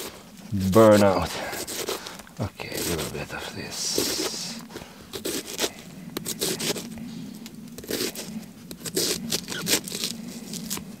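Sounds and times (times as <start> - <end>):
knife slicing onion: 5.2 - 6.9.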